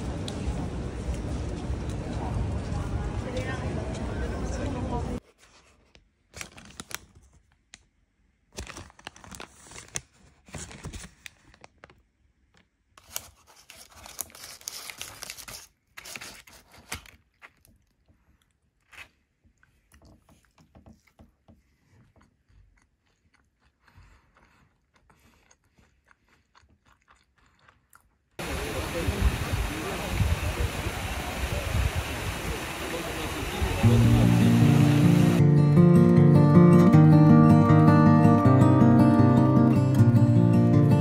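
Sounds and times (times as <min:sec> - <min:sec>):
paper rustling: 0:05.2 - 0:07.6, 0:08.6 - 0:12.0, 0:13.0 - 0:17.7.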